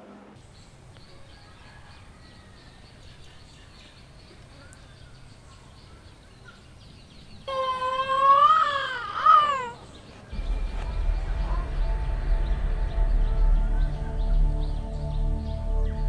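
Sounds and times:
bird chirps: 0.4 - 16.0.

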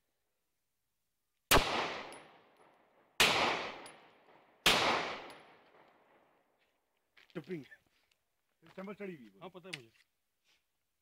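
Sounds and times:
pistol shots with echo: 1.5 - 6.3.

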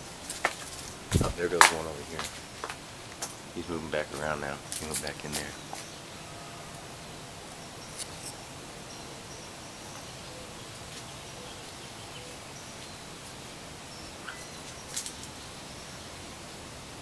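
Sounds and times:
outdoor background hiss: 0.0 - 17.0
faint high chirps: 3.5 - 16.4
small clicks and rustles: 14.3 - 15.4.

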